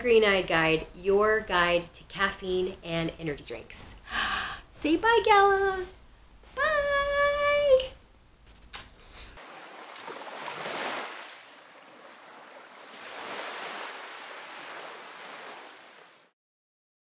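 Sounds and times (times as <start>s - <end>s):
ocean wave rushing: 9.4s - 16.3s.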